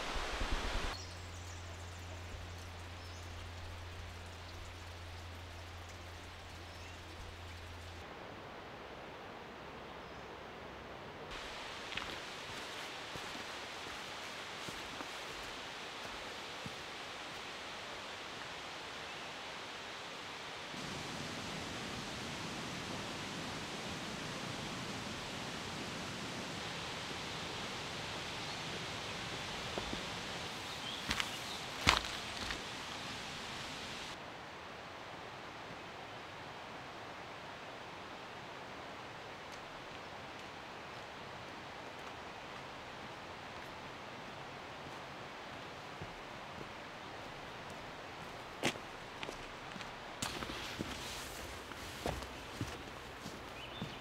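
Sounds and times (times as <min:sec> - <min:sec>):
distant rushing creek water: 0:00.0 - 0:54.0
forest ambience hiss: 0:00.0 - 0:54.0.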